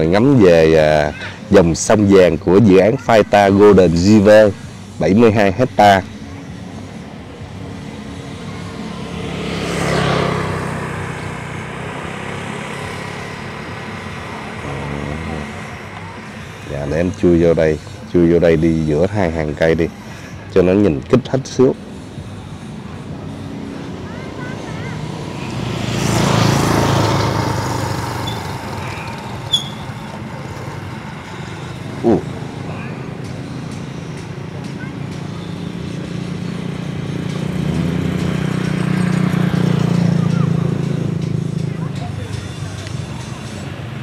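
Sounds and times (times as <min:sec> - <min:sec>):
vehicle engine hum: 0:00.0 - 0:44.0
sharp high squeak: 0:28.1 - 0:30.1.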